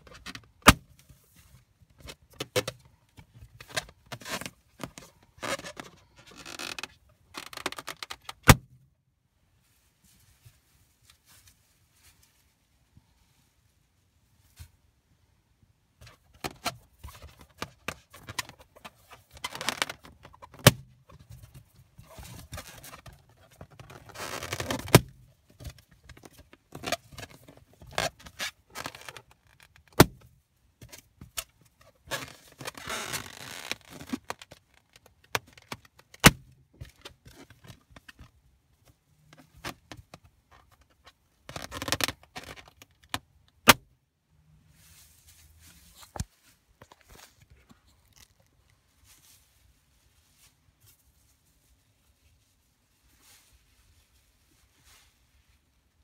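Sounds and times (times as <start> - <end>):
latex rubbing and squeaking: 3.6 - 8.4, 16.0 - 25.1, 25.7 - 30.0, 31.8 - 36.1, 47.2 - 48.5.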